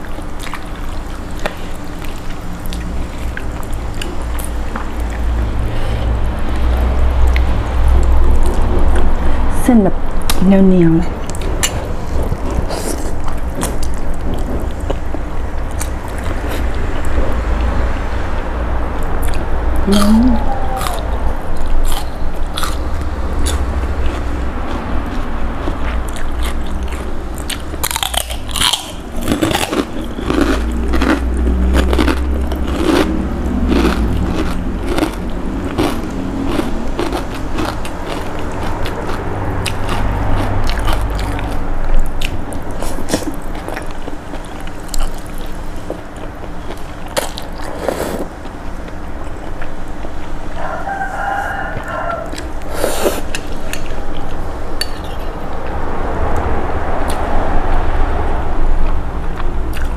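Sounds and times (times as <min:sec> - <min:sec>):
crunching and chewing: 0:00.0 - 0:09.1, 0:11.2 - 0:17.7, 0:19.0 - 0:55.4, 0:58.8 - 0:59.9
noodles being slurped: 0:47.7 - 0:48.3.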